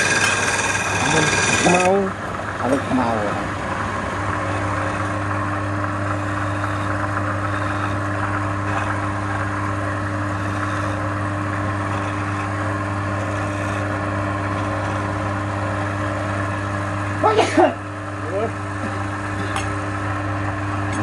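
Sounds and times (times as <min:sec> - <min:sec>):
turning tool scraping wood: 0:00.0 - 0:02.9, 0:03.8 - 0:16.7
lathe motor humming: 0:00.0 - 0:21.0.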